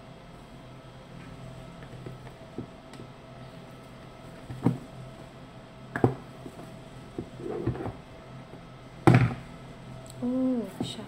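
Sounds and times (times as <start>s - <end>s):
knocks and thumps on box: 9.1s - 9.4s.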